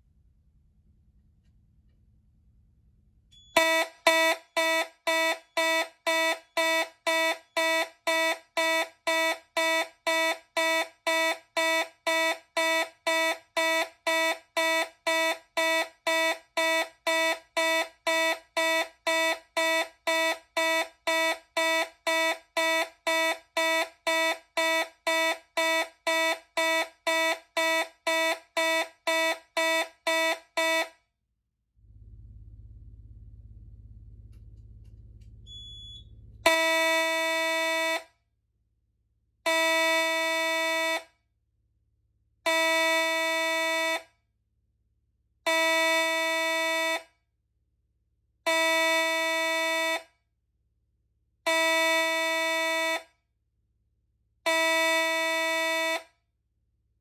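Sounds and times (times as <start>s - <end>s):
fire alarm horn pulsing: 3.4s - 31.0s, 33.5s - 38.1s, 39.4s - 41.1s, 42.5s - 44.1s, 45.5s - 47.1s, 48.5s - 50.1s, 51.5s - 53.1s, 54.5s - 56.1s.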